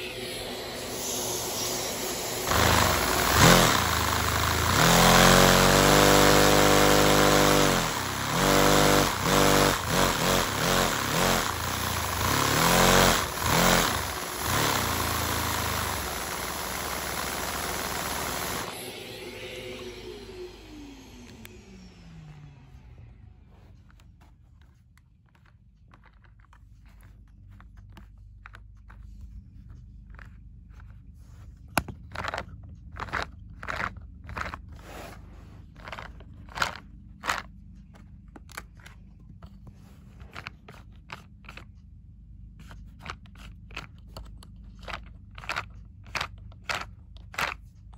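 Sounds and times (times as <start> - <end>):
crunching and scraping: 23.5 - 41.8.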